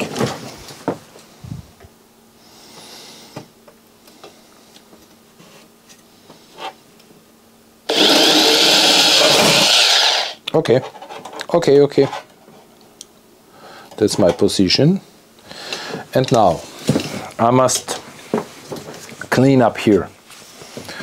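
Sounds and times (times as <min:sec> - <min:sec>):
electric drill drilling metal: 0:07.9 - 0:10.4.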